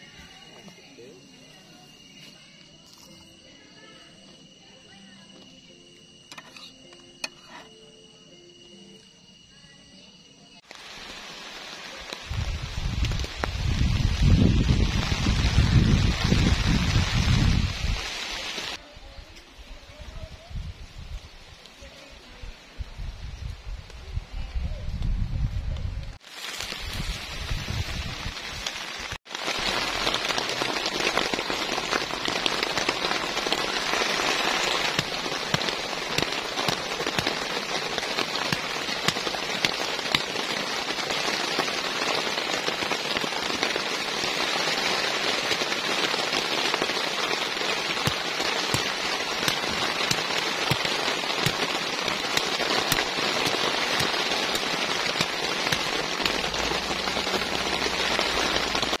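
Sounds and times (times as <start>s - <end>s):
steady rain falling: 10.6s - 59.0s.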